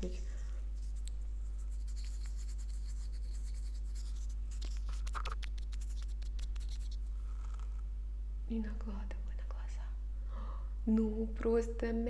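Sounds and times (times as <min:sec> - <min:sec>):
steady low hum: 0:00.0 - 0:12.0
makeup jars scratching and clicking: 0:01.8 - 0:07.7.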